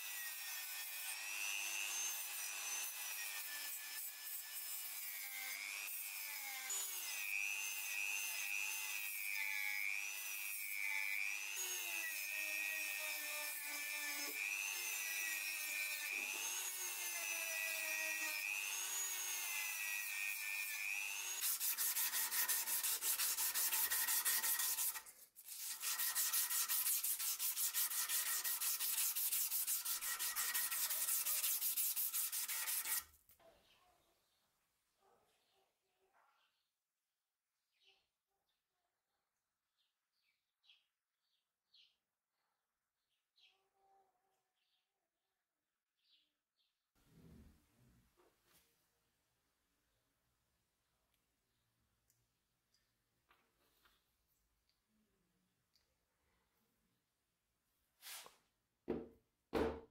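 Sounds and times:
sanding drum rasping on metal: 0:21.4 - 0:33.0.

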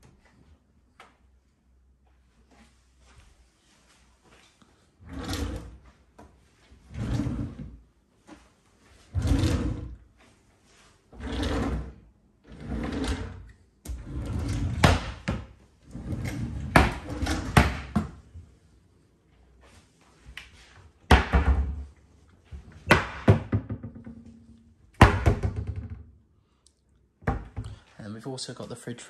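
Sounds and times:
drawers sliding open and shut: 0:05.0 - 0:05.8, 0:06.9 - 0:07.8, 0:09.1 - 0:10.0, 0:11.2 - 0:18.2.

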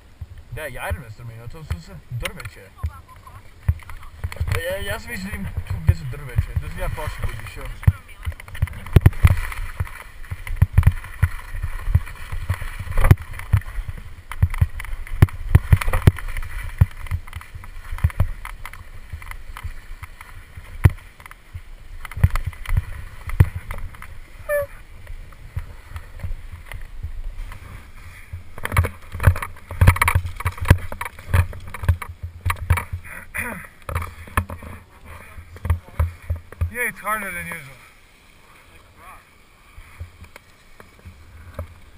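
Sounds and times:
skis scraping on hard snow: 0:00.5 - 0:41.9.

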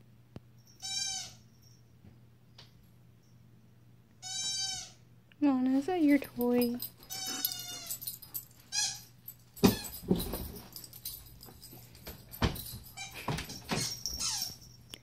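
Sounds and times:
dog whining: 0:07.1 - 0:09.1, 0:13.8 - 0:14.7.

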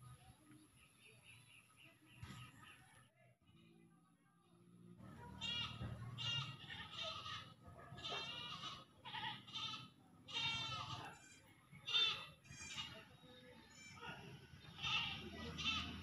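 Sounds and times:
puppies whimpering: 0:05.1 - 0:13.1, 0:13.7 - 0:16.0.

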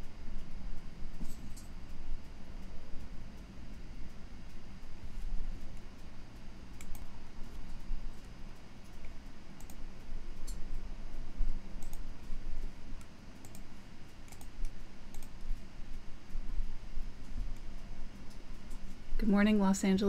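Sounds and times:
steady low hum: 0:00.0 - 0:20.0
sharp clicks: 0:06.8 - 0:07.8, 0:08.9 - 0:10.7, 0:11.8 - 0:12.1, 0:13.0 - 0:15.4.

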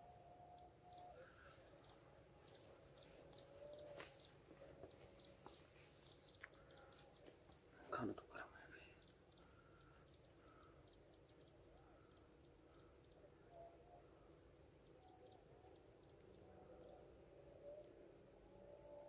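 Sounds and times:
crickets chirring: 0:00.0 - 0:19.0.

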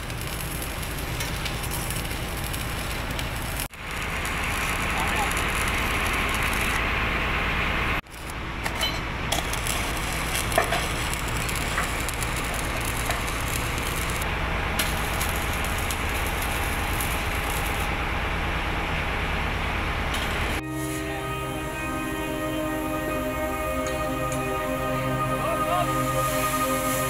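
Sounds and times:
welding electrode crackling: 0:00.0 - 0:06.9, 0:08.0 - 0:18.1
low hum: 0:00.0 - 0:27.0.

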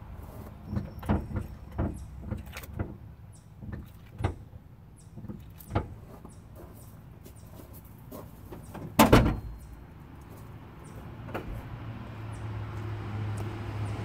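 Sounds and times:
knocks and thumps: 0:00.7 - 0:03.0.

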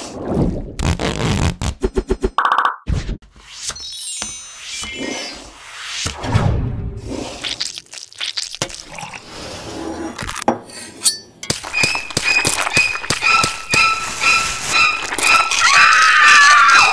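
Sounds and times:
steel squeaking on glass: 0:11.7 - 0:16.0.

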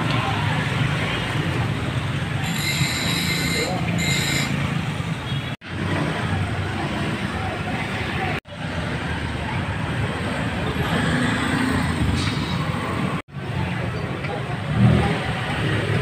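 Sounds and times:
passing motor vehicles: 0:00.0 - 0:16.0.

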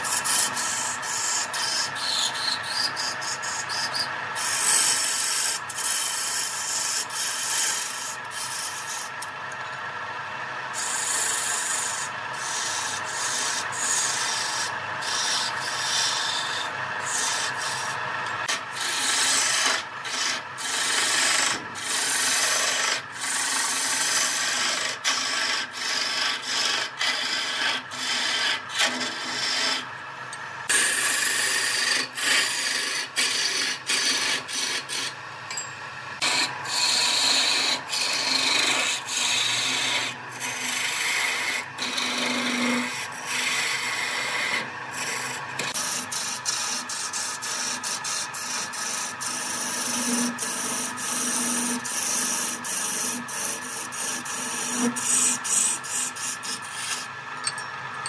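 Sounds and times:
lathe gouge scraping wood: 0:00.0 - 0:09.2, 0:10.8 - 0:29.9, 0:30.7 - 0:35.1, 0:36.2 - 0:57.2.

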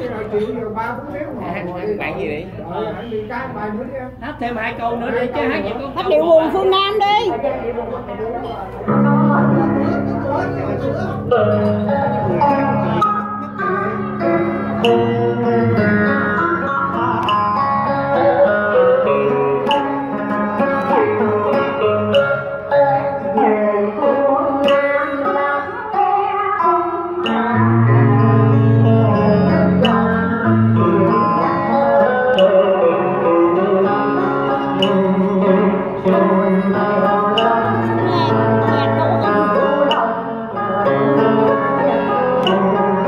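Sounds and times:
backing track with plucked strings: 0:00.0 - 0:43.0
woman singing into a microphone: 0:22.7 - 0:32.5, 0:35.8 - 0:43.0.

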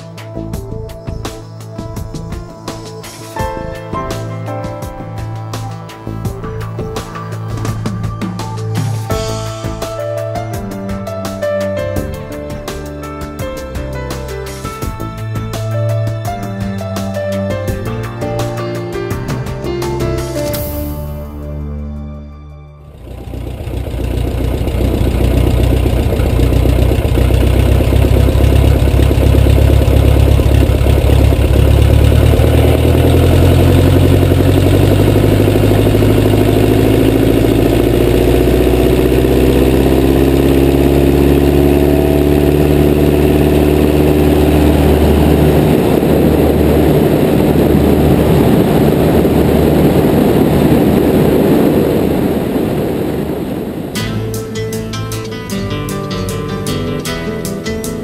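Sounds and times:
propeller plane engine: 0:00.0 - 0:21.6, 0:22.8 - 0:54.9
wind rushing past camera: 0:44.9 - 0:54.0.

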